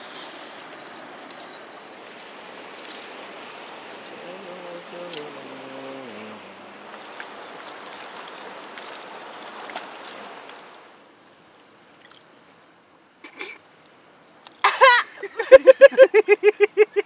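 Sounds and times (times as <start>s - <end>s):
river water rushing: 0.0s - 16.2s
faint ticks: 5.0s - 5.3s.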